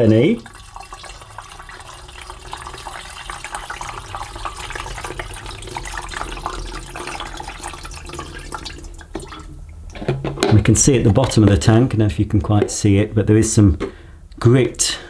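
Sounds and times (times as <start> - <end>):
water pouring and trickling: 0.0 - 9.8.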